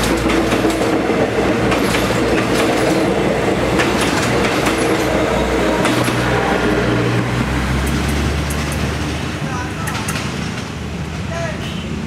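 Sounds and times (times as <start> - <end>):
train wheels clicking over rail joints: 0.0 - 6.4, 7.1 - 10.8
train rumble: 0.0 - 12.0.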